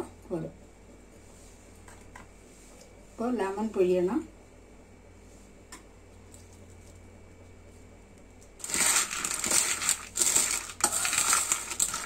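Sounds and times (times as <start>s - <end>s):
nuts rattling in steel bowl: 8.6s - 12.0s.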